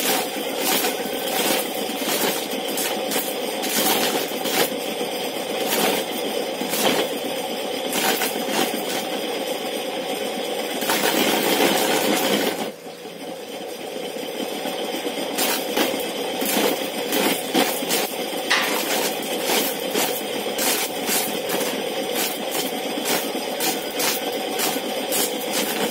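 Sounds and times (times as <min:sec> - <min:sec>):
corn sheller grinding rattle: 0:00.0 - 0:25.9
kernels clattering: 0:18.5 - 0:20.0.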